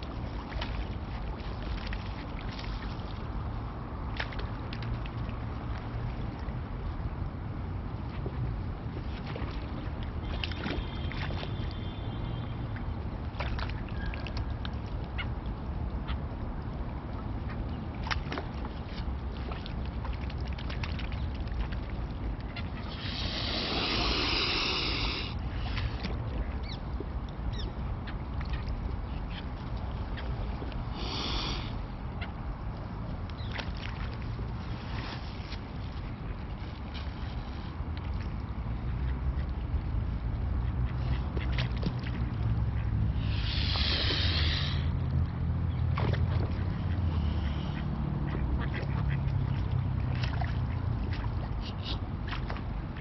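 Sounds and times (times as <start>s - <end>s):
wind rumble on microphone: 0.0s - 31.0s
small water splashes: 0.0s - 53.0s
swans hissing: 22.8s - 25.8s, 30.9s - 31.8s, 43.2s - 44.9s.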